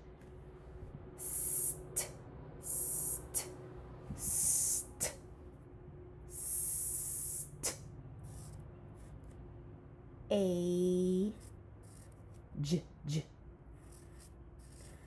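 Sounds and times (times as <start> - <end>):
faint steady hum: 0.0 - 15.0
high-pitched hissing bursts: 1.2 - 3.5.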